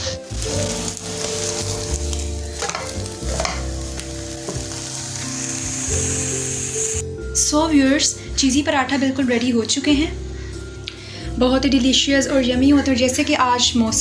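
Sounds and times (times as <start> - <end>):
flatbread sizzling in oil: 0.0 - 7.0.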